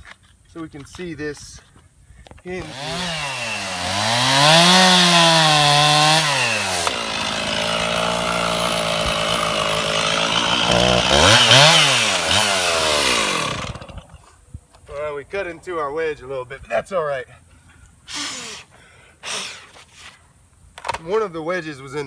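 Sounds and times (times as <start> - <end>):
chainsaw cutting wood: 2.6 - 14.2.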